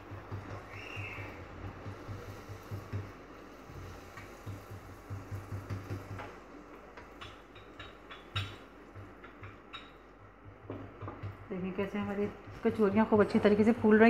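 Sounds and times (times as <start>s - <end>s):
oil sizzling and crackling: 0.0s - 14.0s.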